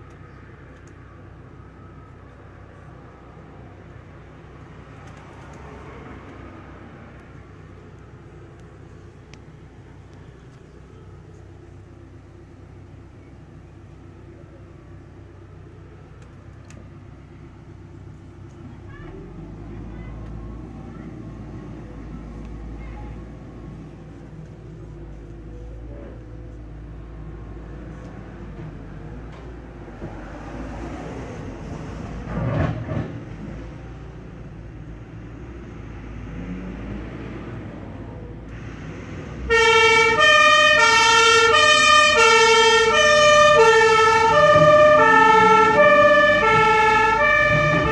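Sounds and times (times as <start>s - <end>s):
engine hum: 0.0s - 47.9s
vehicle driving past: 4.9s - 7.2s, 26.9s - 41.3s, 43.0s - 47.9s
large engine running: 42.7s - 47.9s.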